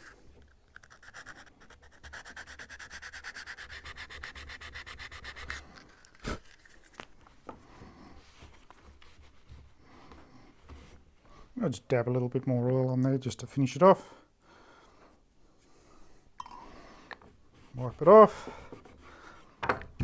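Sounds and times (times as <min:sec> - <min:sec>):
sandpaper rubbing wood: 0:00.8 - 0:05.6.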